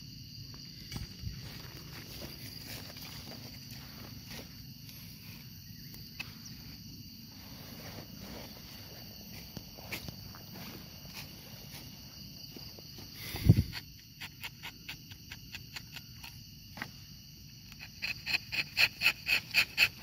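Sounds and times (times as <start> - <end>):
insects chirring: 0.0 - 20.0
footsteps on dry leaves: 0.9 - 5.4, 7.3 - 12.7.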